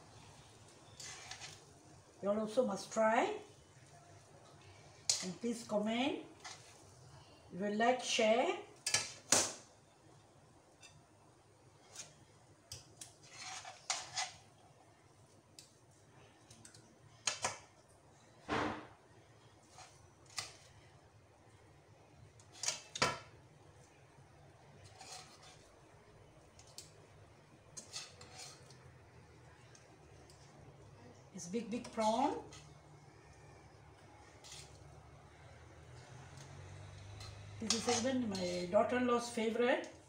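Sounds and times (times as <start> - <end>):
utensils scraping a wok: 0.8 - 1.7, 5.0 - 5.5, 6.3 - 6.9, 11.8 - 12.3, 13.0 - 14.5, 19.6 - 20.8, 24.8 - 25.8, 27.7 - 28.9, 31.6 - 32.8, 34.2 - 39.4.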